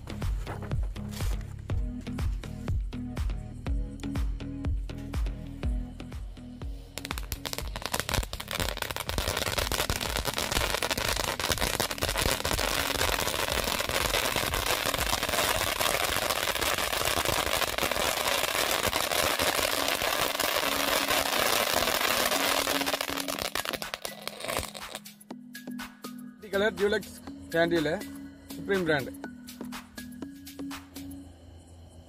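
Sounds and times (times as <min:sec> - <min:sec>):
firework fountain hissing and crackling: 0:07.0 - 0:25.0.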